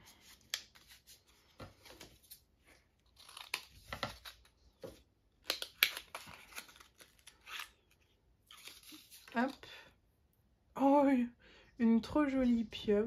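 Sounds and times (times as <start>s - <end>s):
paper crinkling and tearing: 3.0s - 4.6s, 5.5s - 9.6s.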